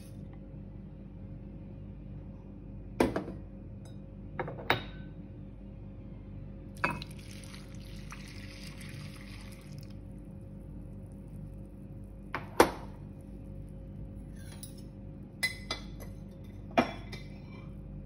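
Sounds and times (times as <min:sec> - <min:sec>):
glass and crockery clinking: 0:06.8 - 0:07.2
milk pouring onto oats: 0:07.0 - 0:12.0.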